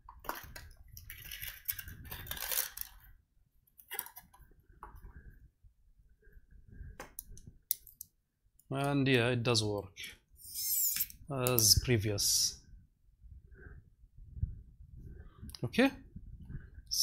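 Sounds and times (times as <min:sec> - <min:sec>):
small parts rattling and clinking: 0:00.2 - 0:03.1.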